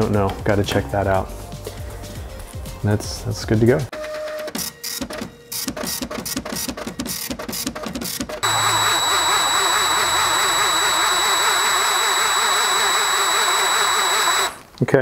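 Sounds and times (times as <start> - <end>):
glitchy electronic stuttering bursts: 8.4 - 14.6
cordless drill whining: 8.4 - 14.7.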